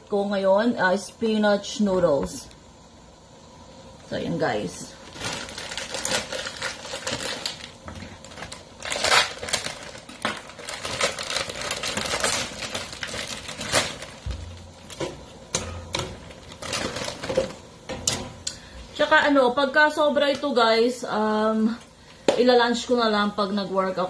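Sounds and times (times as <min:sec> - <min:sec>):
plastic bag crinkling: 0:04.8 - 0:17.7.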